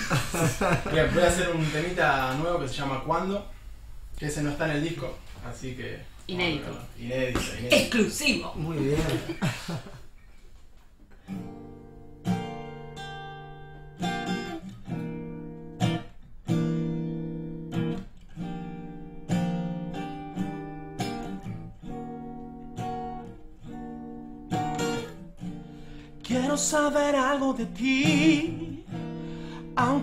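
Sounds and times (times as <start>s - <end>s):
acoustic guitar strummed chords: 11.2s - 30.0s.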